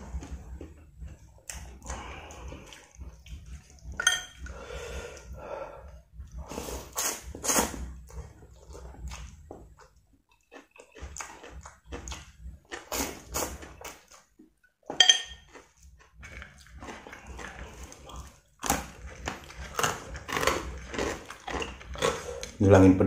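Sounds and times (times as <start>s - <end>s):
wet chewing and slurping noodles: 0.0s - 22.6s
chopsticks clinking on ceramic bowl: 4.0s - 4.4s, 15.0s - 15.5s.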